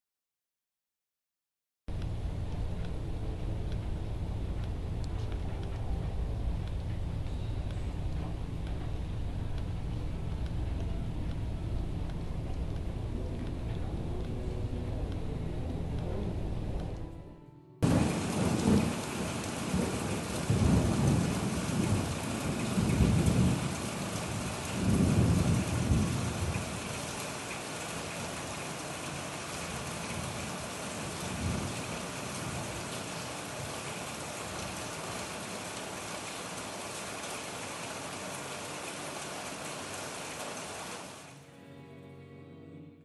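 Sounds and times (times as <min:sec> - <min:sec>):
rain on a metal roof: 0:01.9 - 0:15.2, 0:17.8 - 0:41.4
low thunder rumbles: 0:17.8 - 0:35.3.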